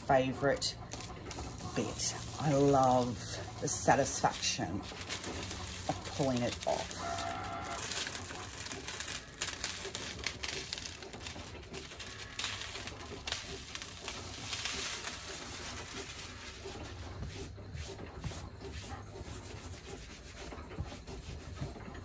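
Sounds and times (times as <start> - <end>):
plastic film crackling as peeled: 0.0 - 17.2
hand smoothing fabric: 16.2 - 21.8.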